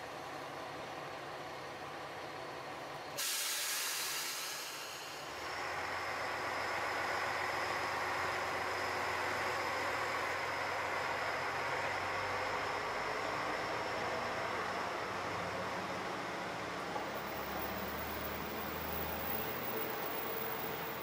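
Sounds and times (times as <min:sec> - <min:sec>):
diesel railcar engine: 0:00.0 - 0:21.0
train brakes hissing air: 0:03.2 - 0:07.2.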